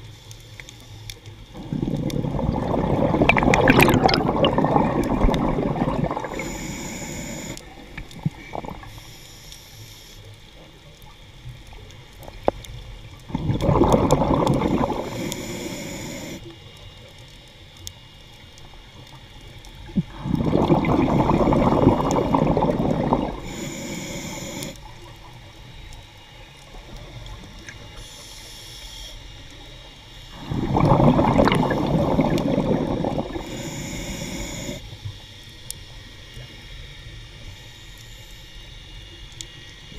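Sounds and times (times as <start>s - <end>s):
regulator hiss: 0.0s - 10.5s, 13.4s - 16.6s, 19.4s - 25.1s, 27.9s - 34.9s
exhaled bubbles underwater: 1.4s - 9.0s, 11.8s - 16.5s, 19.6s - 25.5s, 30.3s - 34.9s.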